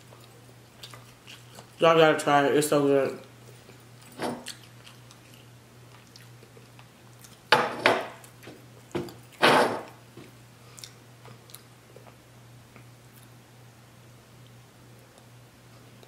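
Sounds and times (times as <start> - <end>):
tableware clatter: 7.5 - 8.2
tableware knocking on table: 7.5 - 8.2.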